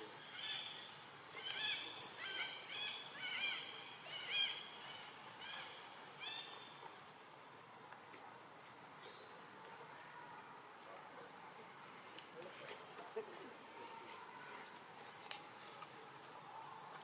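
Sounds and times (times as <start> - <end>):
high insect hum: 0.0 - 17.0.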